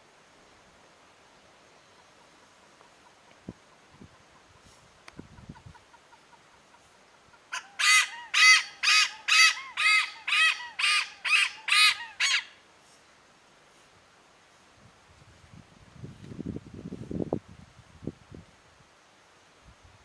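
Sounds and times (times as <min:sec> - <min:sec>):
hornbill calling: 0:05.9 - 0:12.6.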